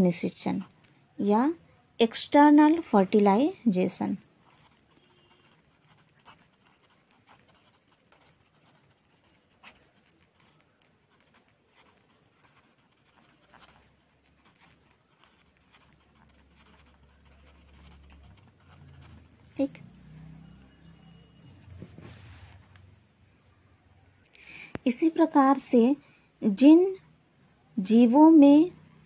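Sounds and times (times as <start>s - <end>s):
pen scratching on paper: 3.8s - 19.7s.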